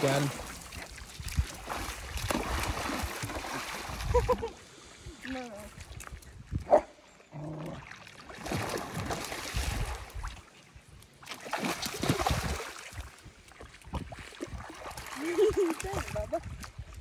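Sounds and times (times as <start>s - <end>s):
fish thrashing and splashing: 0.0s - 4.5s, 7.8s - 10.5s, 11.3s - 16.4s.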